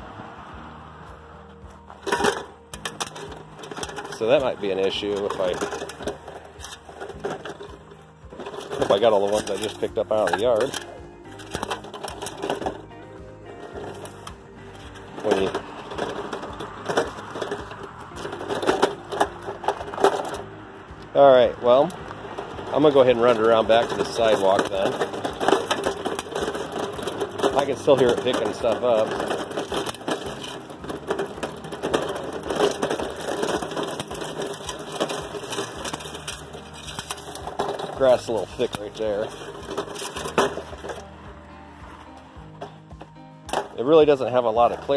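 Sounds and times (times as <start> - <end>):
sweeper crunching over gravel: 0.0 - 44.9
crackle of metal clicks: 21.9 - 41.1.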